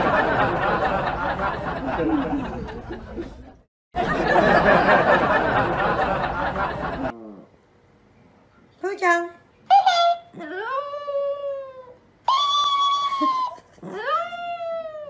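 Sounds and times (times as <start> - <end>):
audience laughter and chatter: 0.0 - 7.1.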